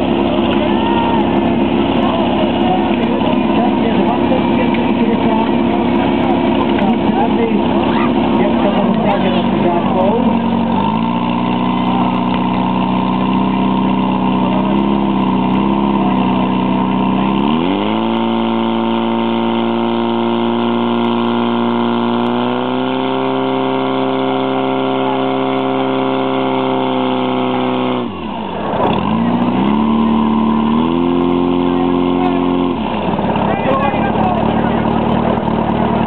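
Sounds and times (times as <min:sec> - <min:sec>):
fire pump engine running: 0:00.0 - 0:36.0.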